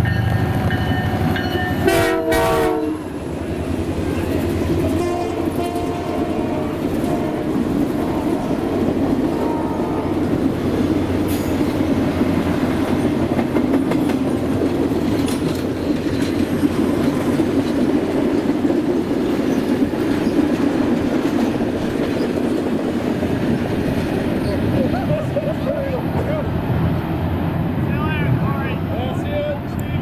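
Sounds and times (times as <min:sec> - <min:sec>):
train wheels rumbling on rail: 0:00.0 - 0:30.0.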